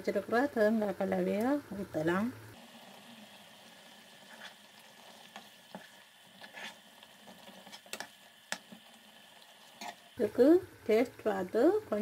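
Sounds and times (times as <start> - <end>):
faint sizzle: 0.0 - 12.0
metal spoon scraping a frying pan: 4.2 - 4.6, 5.2 - 8.1, 9.6 - 10.1.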